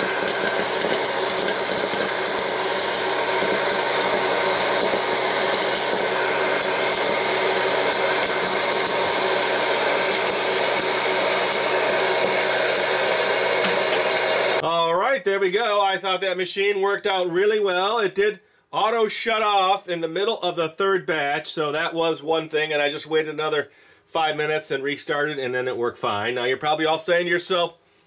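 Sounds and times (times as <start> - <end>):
popcorn kernels popping: 0.0 - 12.8
hot air popper fan humming: 0.0 - 14.6.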